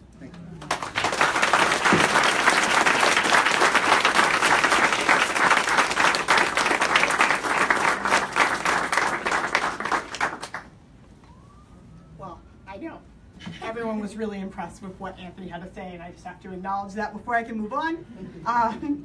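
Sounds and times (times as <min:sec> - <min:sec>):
audience applauding: 0:00.6 - 0:10.7.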